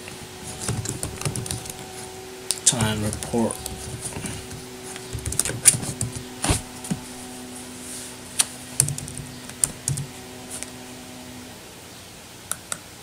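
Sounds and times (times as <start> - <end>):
keyboard typing: 0.6 - 1.9, 2.7 - 6.3, 8.8 - 10.1.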